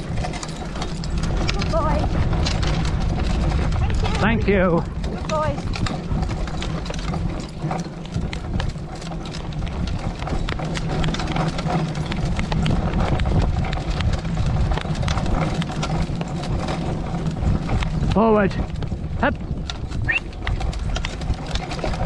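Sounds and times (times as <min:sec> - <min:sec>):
carriage and harness rattling: 0:00.0 - 0:22.0
hoofbeats on grass: 0:00.0 - 0:22.0
wheels rumbling: 0:00.0 - 0:22.0.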